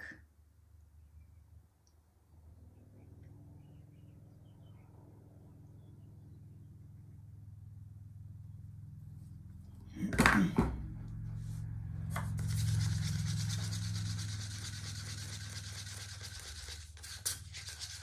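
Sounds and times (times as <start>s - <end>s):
low hum: 0.6s - 16.9s
stick scraping plastic cup: 12.1s - 18.0s.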